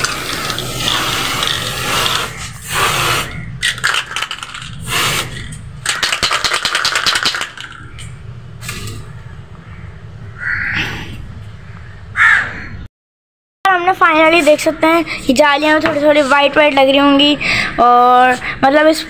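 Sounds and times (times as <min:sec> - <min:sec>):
spray paint can hissing: 0:00.0 - 0:07.8
spray can rattling clicks: 0:00.0 - 0:08.1.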